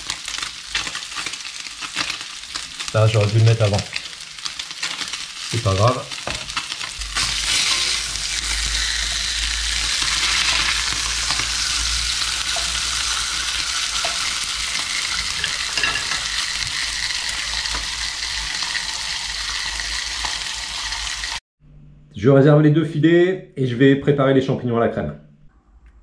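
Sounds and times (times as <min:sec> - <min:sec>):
fish sizzling in a frying pan: 0:00.0 - 0:21.4.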